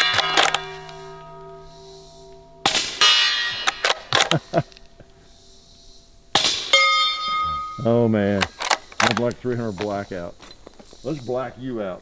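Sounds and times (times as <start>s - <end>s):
rifle bolt metallic clicks: 0.0s - 1.0s, 3.6s - 4.9s, 8.4s - 9.5s
steel target ringing: 0.0s - 5.0s, 6.3s - 8.3s
suppressed rifle shots: 2.6s - 4.4s.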